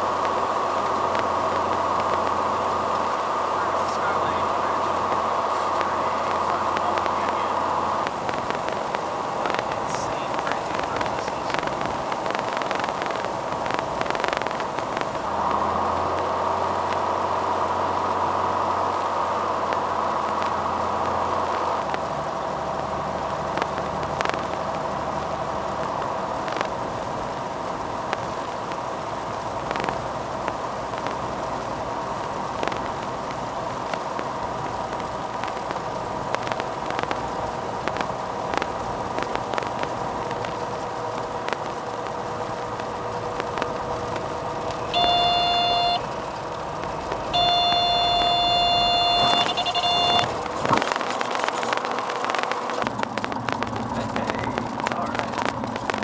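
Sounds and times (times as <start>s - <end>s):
propeller plane engine drone: 0.0s - 56.0s.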